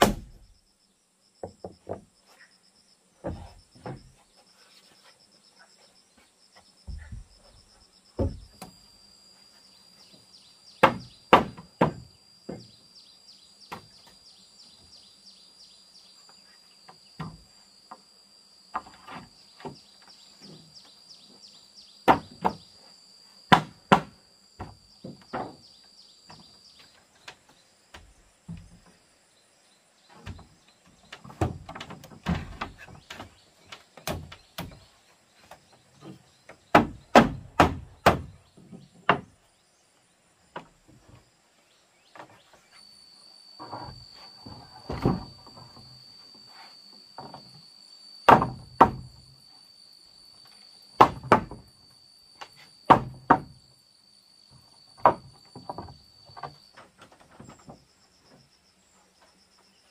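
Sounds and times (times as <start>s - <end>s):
high insect buzz: 0.0s - 59.9s
wooden boards knocking: 3.2s - 4.2s, 8.2s - 8.6s, 10.8s - 12.7s, 23.5s - 25.6s, 30.2s - 34.8s, 36.0s - 39.4s, 43.8s - 45.8s, 48.3s - 49.1s, 51.0s - 51.6s, 52.5s - 53.6s, 55.0s - 57.8s.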